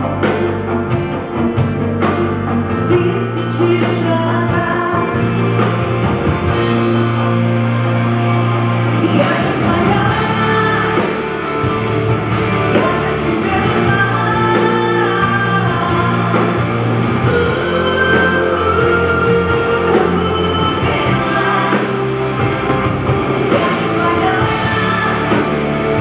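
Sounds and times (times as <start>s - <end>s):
rock band playing: 0.0s - 26.0s
steady drum beat: 0.0s - 26.0s
woman singing into a microphone: 2.8s - 5.3s, 9.0s - 11.4s, 12.6s - 22.1s, 23.5s - 25.7s.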